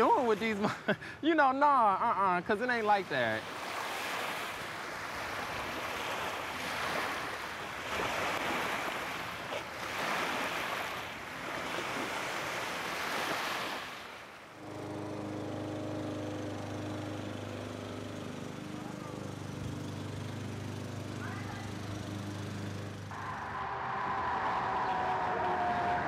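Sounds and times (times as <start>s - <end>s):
surf washing onto beach: 2.8s - 18.8s, 22.0s - 26.0s
steady low hum: 14.5s - 26.0s.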